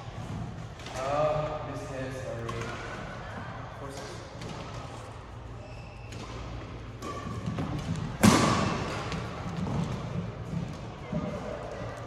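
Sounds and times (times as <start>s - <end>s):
shoe squeaks on court: 5.6s - 6.2s
racket hitting shuttlecock: 6.1s - 10.8s
loud sharp echoing impact: 7.1s - 10.6s.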